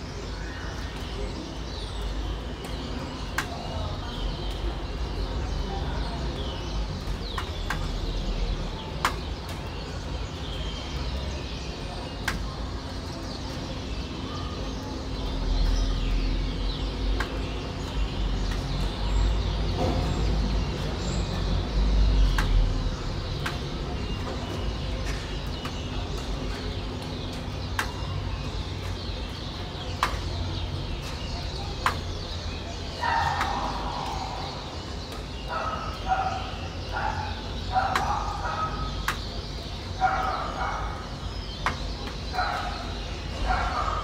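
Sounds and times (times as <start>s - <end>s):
low rumble of city traffic: 0.0s - 44.0s
starlings chattering: 0.0s - 44.0s
water drips: 16.5s - 36.6s.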